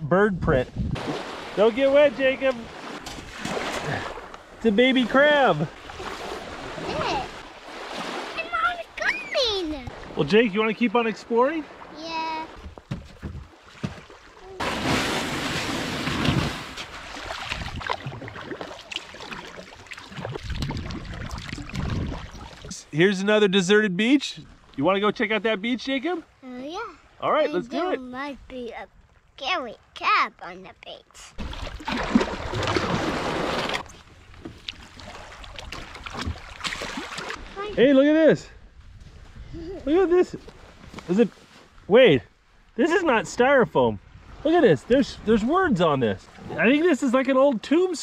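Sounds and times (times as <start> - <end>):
rush of water and hull: 0.4 - 23.0, 31.3 - 38.1, 42.8 - 48.0
water splashing: 0.9 - 23.0, 31.3 - 37.9
kayak hull scraping on sand: 14.6 - 17.7, 32.6 - 35.3.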